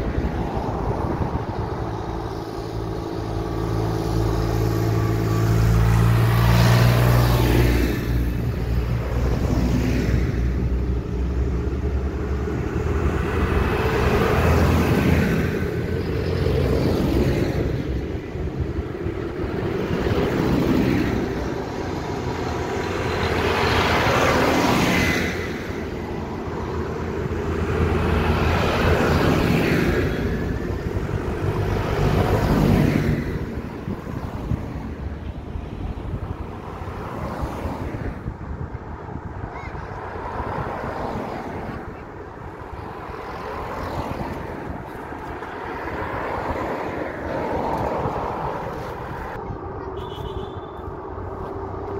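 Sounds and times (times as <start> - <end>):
tractors and cars passing: 0.0 - 51.9
tyre noise on tarmac: 41.0 - 51.9.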